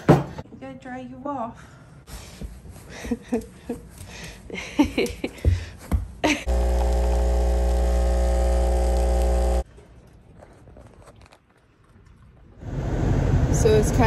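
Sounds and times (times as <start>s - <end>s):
motor whirring with hum: 6.5s - 9.6s.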